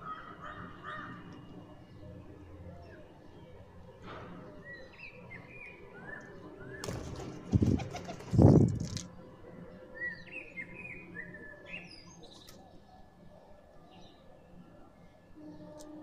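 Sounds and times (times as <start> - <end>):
bird wings flapping: 6.8 - 9.1.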